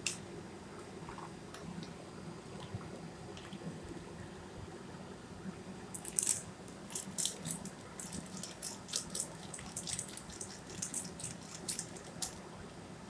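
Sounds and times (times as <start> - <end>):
low steady hum: 0.0 - 13.0
foil sachet crinkling: 6.0 - 12.4.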